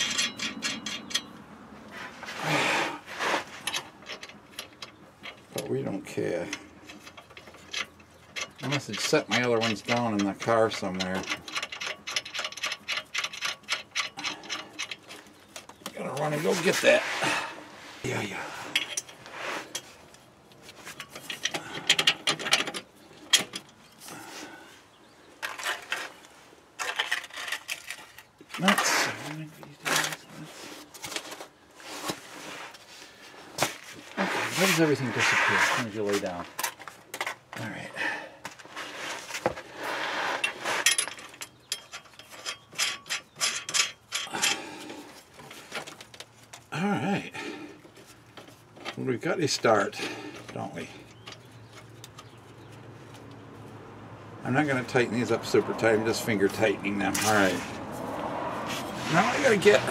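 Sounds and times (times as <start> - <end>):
bolts and nut clicking on metal: 0.0 - 1.4, 3.6 - 16.7, 18.7 - 20.2, 20.9 - 24.0, 40.4 - 46.8, 48.4 - 53.4
bolts knocking against metal: 6.5 - 16.3
metal rasping scrapes: 34.0 - 36.4, 54.9 - 59.9.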